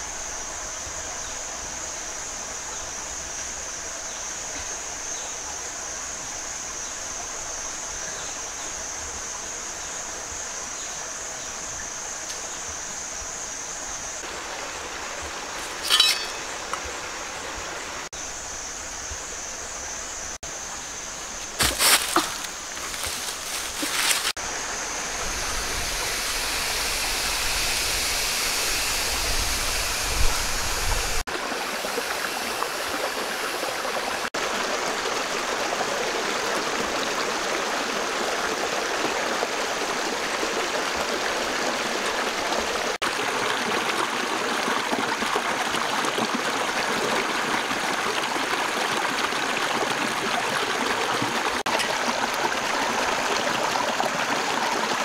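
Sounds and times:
stream rushing over stones: 14.2 - 18.1, 21.3 - 55.0.

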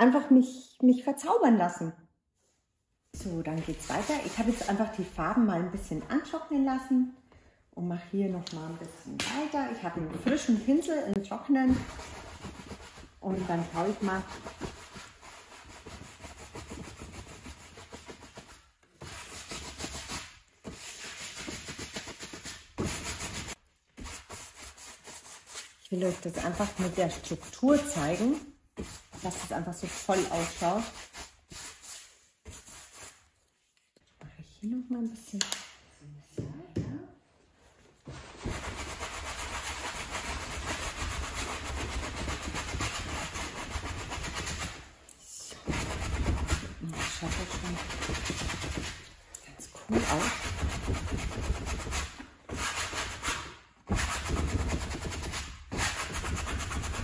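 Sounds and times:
paintbrush scrubbing on foil canvas: 3.4 - 5.2, 11.2 - 33.8, 37.6 - 44.9, 45.7 - 49.2, 49.9 - 57.0.

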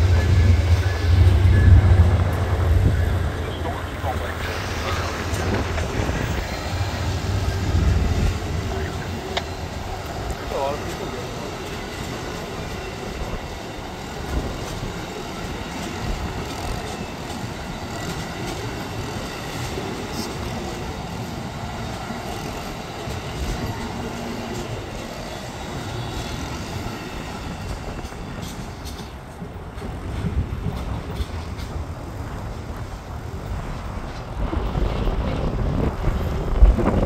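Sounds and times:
train wheels rumbling on rails: 0.0 - 37.0.

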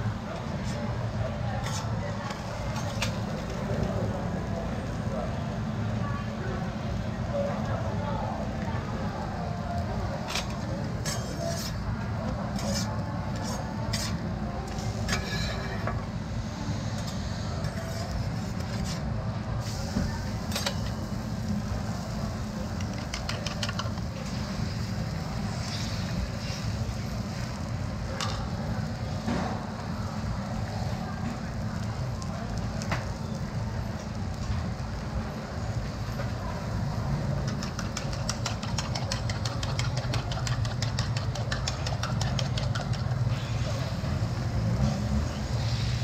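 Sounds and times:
food frying on a griddle: 0.0 - 46.0
metal spatula scraping griddle: 1.6 - 3.3, 10.2 - 16.0, 16.8 - 19.1.

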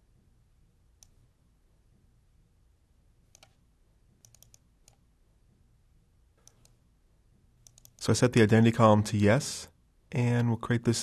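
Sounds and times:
computer mouse clicks: 1.0 - 1.2, 3.3 - 3.6, 4.2 - 5.0, 6.4 - 6.8, 7.6 - 8.0.

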